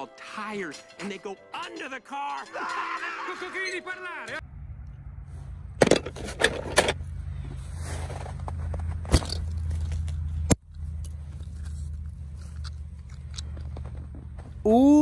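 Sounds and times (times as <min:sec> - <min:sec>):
steady low rumble: 0:04.4 - 0:14.6.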